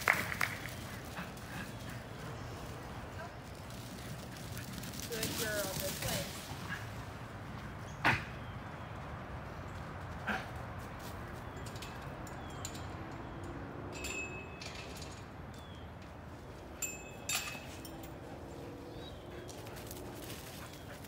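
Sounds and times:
outdoor background hum: 0.0s - 21.0s
metal gate and latch clanking: 11.6s - 15.7s, 16.8s - 18.2s.

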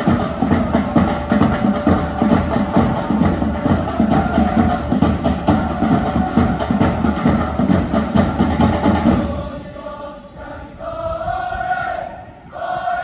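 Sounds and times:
steady drumbeat: 0.0s - 9.8s
crowd singing in unison: 0.0s - 13.0s.

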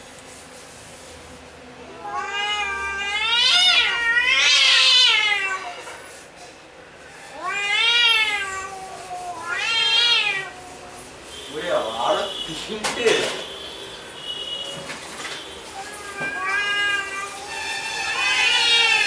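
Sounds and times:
cats yowling: 1.8s - 6.0s, 7.3s - 11.1s, 15.7s - 19.0s.

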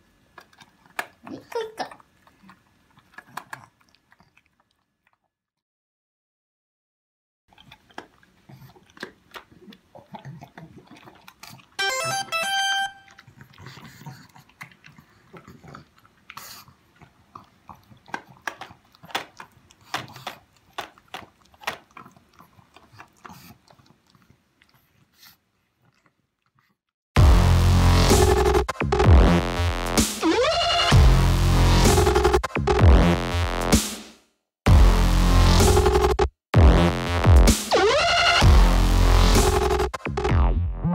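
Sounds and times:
dog crunching food: 0.2s - 5.3s, 7.5s - 11.8s, 13.1s - 26.7s
short electronic jingle: 11.8s - 13.2s.

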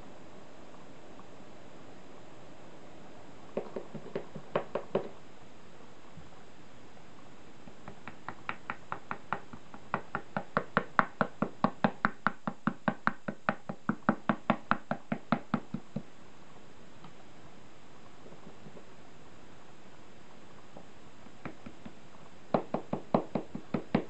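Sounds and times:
brush tapping on board: 3.6s - 5.2s, 7.6s - 16.1s, 20.8s - 24.0s.

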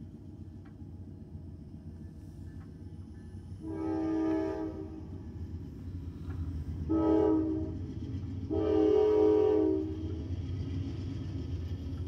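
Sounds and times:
locomotive air horn blasts: 3.6s - 5.0s, 6.9s - 7.8s, 8.5s - 10.0s.

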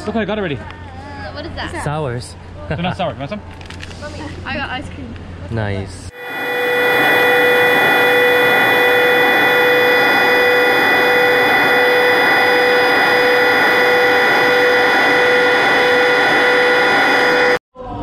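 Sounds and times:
jet engines running: 6.1s - 17.6s.

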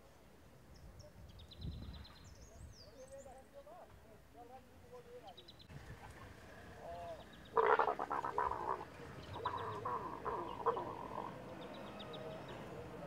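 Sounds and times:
leopards growling: 6.2s - 11.7s.

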